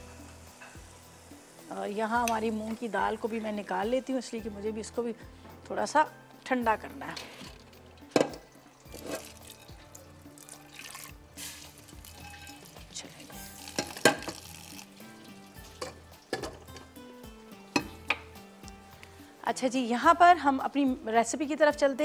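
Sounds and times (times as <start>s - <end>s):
background music: 0.0s - 22.0s
pots and utensils clanking: 7.0s - 10.0s, 11.4s - 18.4s
water poured into steel sink: 8.8s - 9.7s, 10.4s - 12.7s.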